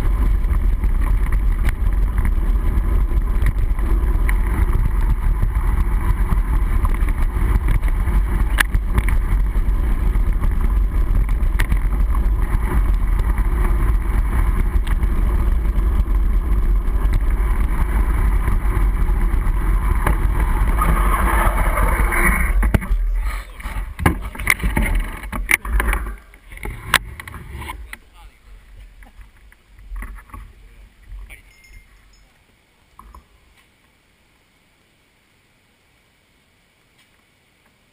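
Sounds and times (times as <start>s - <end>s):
tyres on gravel trail: 0.0s - 37.9s
sharp knocks and rattles: 23.8s - 27.5s.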